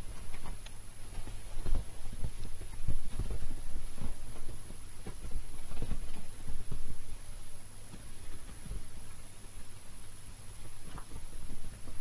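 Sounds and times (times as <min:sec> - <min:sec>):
kittens thumping on a bed: 0:00.0 - 0:07.2, 0:10.7 - 0:12.0.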